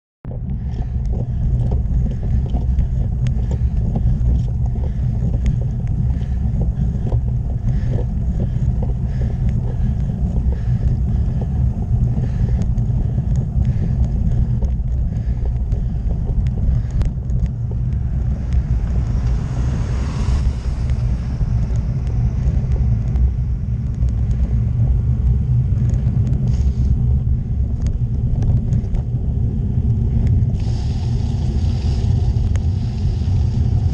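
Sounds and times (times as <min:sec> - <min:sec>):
wind rumble on microphone: 0:00.2 - 0:33.9
tyres on wet tarmac: 0:00.4 - 0:33.9
hiss: 0:30.6 - 0:33.9.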